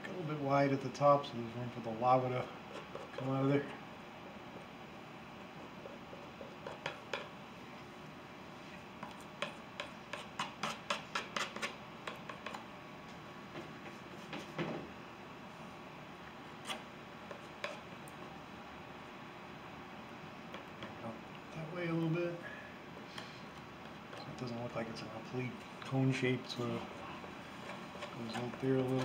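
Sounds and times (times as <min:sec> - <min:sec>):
palette knife scraping paint: 0:02.4 - 0:03.5, 0:09.0 - 0:12.6, 0:16.6 - 0:17.9, 0:25.8 - 0:29.0.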